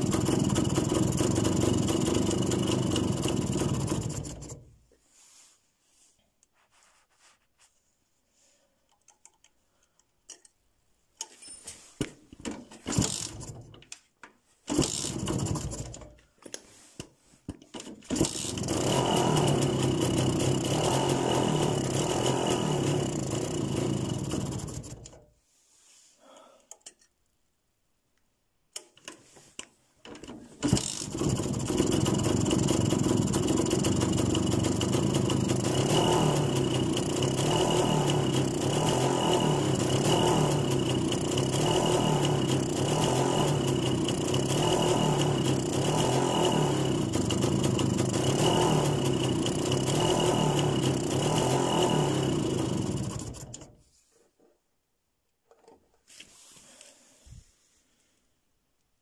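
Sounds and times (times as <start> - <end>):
two-stroke engine sputtering: 0.0 - 4.7, 12.9 - 13.7, 14.7 - 16.1, 18.1 - 25.2, 30.6 - 53.8.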